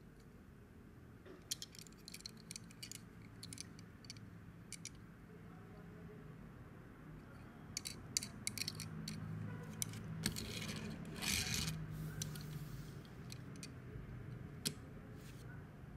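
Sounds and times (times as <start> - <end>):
small clicks and taps of toy car: 1.4 - 5.0, 7.8 - 12.4.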